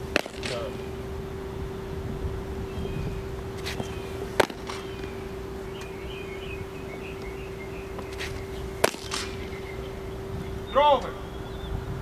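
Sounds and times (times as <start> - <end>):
steady hum: 0.0 - 12.0
baseball smacking into mitt: 0.1 - 0.9, 3.6 - 5.2, 8.0 - 9.6
faint chirping: 0.6 - 12.0.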